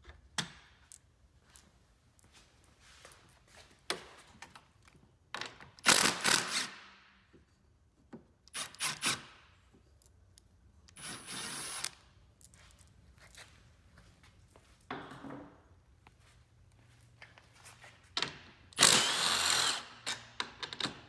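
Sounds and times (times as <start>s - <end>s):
cordless driver whirring: 18.8s - 19.9s.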